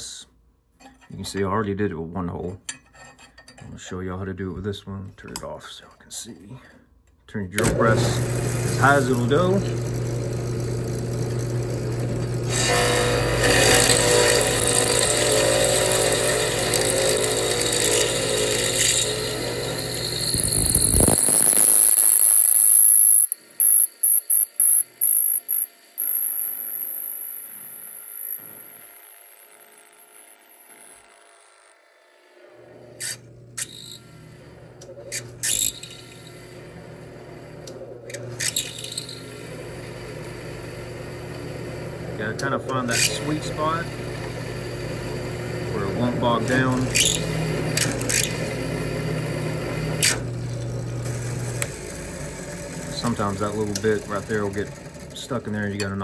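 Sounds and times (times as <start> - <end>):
steel rod grinding with ringing tone: 2.7 - 3.6, 12.5 - 31.8
steel rod scraping in hole: 2.7 - 3.6
drill press motor hum: 7.6 - 55.8.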